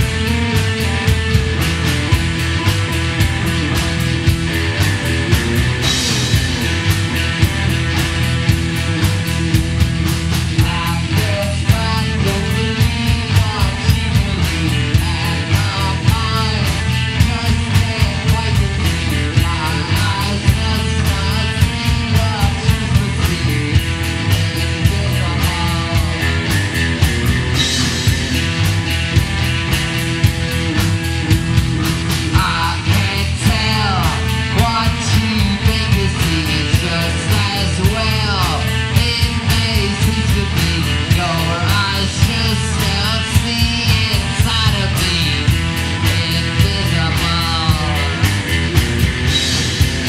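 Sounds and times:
rock song: 0.0 - 50.0.

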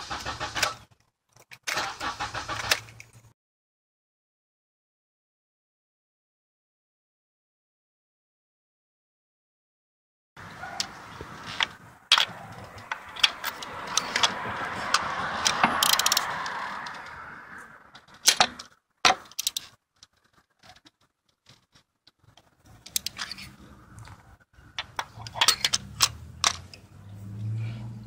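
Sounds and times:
ratchet clicking: 15.4 - 16.3.

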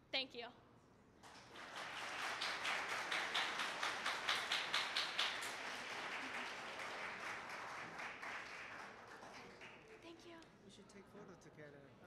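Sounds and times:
audience applauding: 1.2 - 10.0.

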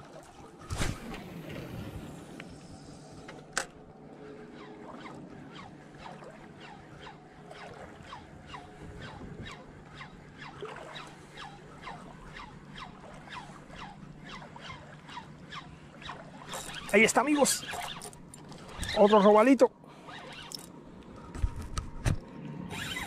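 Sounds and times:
fishing rod swish: 4.5 - 19.1
reel cranking with squeaks: 4.5 - 20.8, 22.7 - 23.0.

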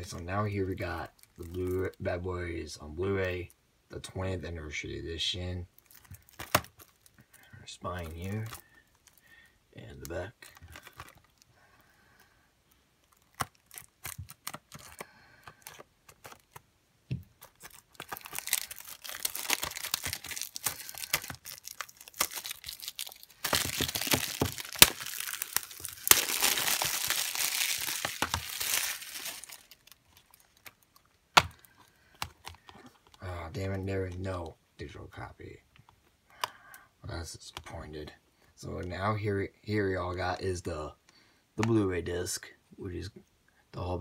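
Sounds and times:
plastic shrink-wrap tearing: 5.8 - 7.1, 13.1 - 16.6, 17.4 - 31.5.

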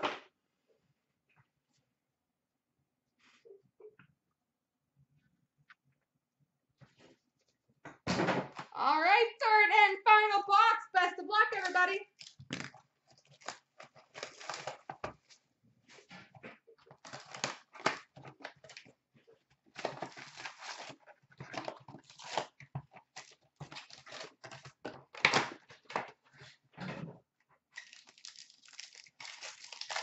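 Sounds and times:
cardboard and foil packs rustling: 12.2 - 26.7, 27.8 - 30.0.

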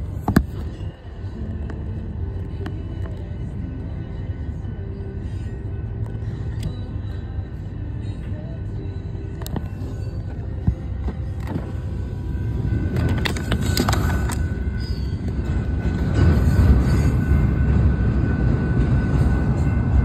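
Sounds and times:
train wheels rumbling on rail: 9.4 - 20.0.

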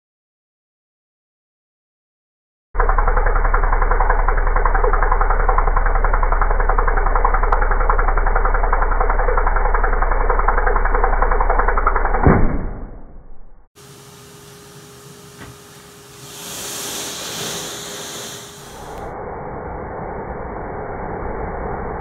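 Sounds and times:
vacuum cleaner running: 13.8 - 22.0.

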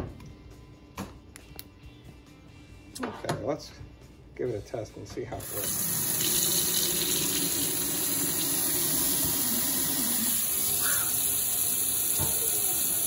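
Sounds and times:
water running into steel sink: 5.4 - 13.0.

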